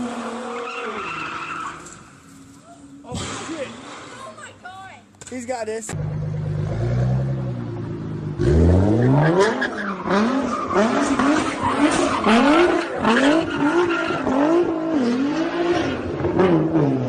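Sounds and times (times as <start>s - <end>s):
tyres screeching on asphalt: 0.0s - 5.3s, 8.3s - 16.9s
car engine revving: 5.9s - 17.0s.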